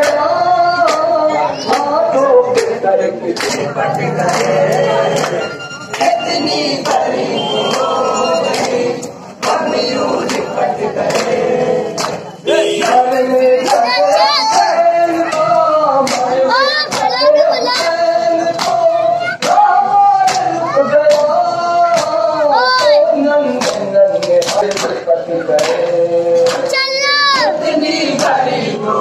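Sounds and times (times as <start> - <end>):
group singing: 0.0 - 29.0
lament sung over microphone: 0.0 - 29.0
hands slapping chests: 14.5 - 16.3, 18.6 - 18.8, 19.4 - 20.5, 21.9 - 22.2, 23.6 - 26.7.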